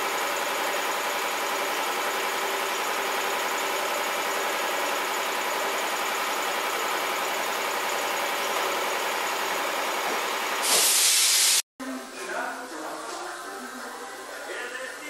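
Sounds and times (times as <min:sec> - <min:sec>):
machine running: 0:00.0 - 0:10.7
loud hiss: 0:10.6 - 0:11.6.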